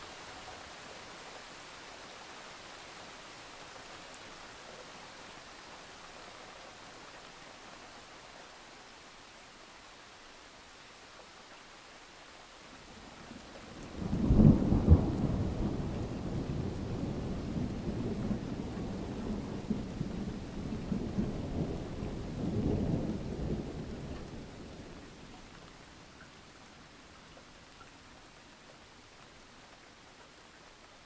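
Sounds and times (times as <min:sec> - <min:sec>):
thunder rumbling: 0:13.9 - 0:25.0.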